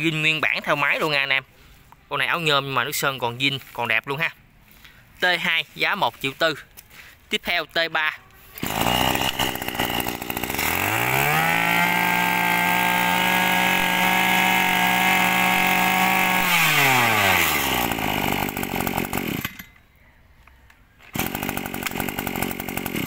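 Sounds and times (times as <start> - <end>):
brush cutter engine revving: 0.0 - 4.1, 8.3 - 19.7, 21.0 - 23.0.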